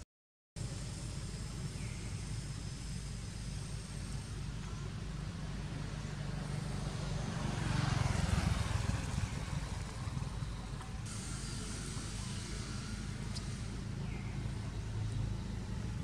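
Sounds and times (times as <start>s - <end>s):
motor vehicle passing: 5.4s - 16.0s.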